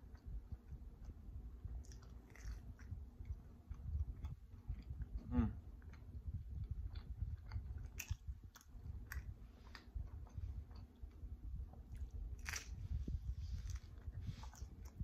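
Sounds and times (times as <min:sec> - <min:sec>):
close chewing: 0:00.0 - 0:15.0
crunchy bite into pizza: 0:11.9 - 0:12.9.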